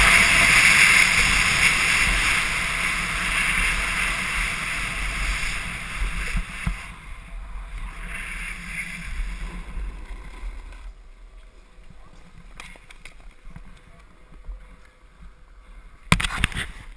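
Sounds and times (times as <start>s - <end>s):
wind rushing over microphone: 0.0s - 10.8s
snowboard sliding on snow: 0.0s - 10.9s.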